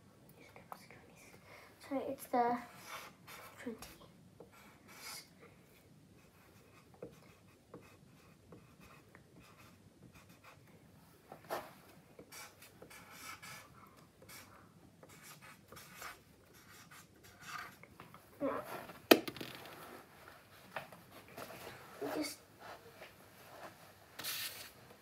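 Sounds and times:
marker pen scratching on paper: 2.7 - 3.7, 4.4 - 5.3, 6.2 - 10.7, 11.5 - 17.8, 24.2 - 24.8.

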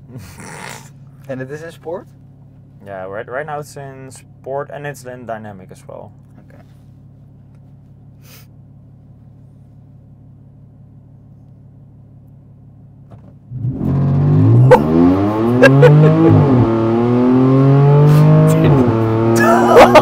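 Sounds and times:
car engine idling: 0.0 - 20.0
car engine revving: 13.0 - 20.0.

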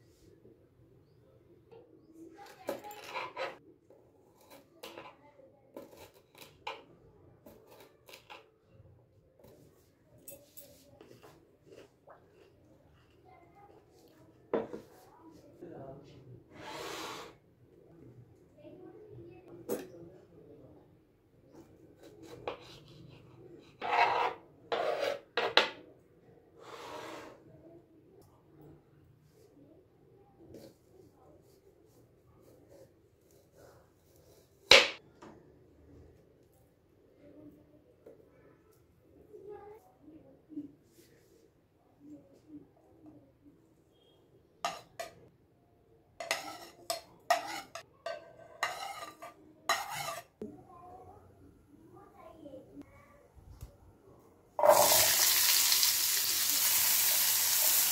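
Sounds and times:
metal spoon scraping a plate: 2.9 - 3.6, 23.7 - 25.4, 46.2 - 50.4
knife rasping against wood: 46.2 - 47.8, 48.6 - 50.3.

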